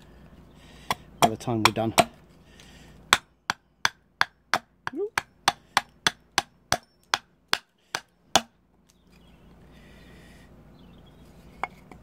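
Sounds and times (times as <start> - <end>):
axe chopping wood: 0.8 - 2.2, 3.0 - 8.5.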